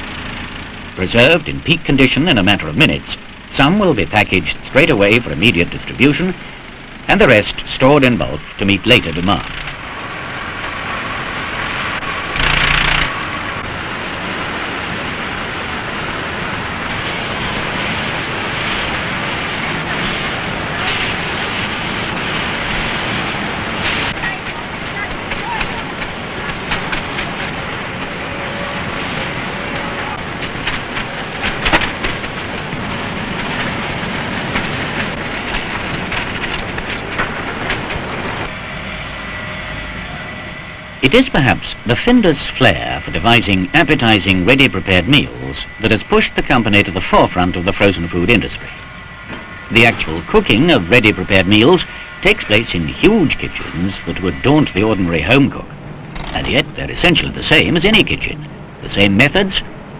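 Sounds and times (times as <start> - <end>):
conveyor machinery drone: 0.0 - 59.9
packing machinery clattering: 23.8 - 28.2, 30.2 - 38.5.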